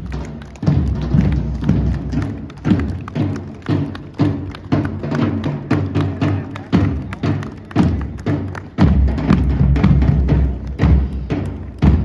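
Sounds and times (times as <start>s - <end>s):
marching bass drums booming: 8.8s - 12.0s.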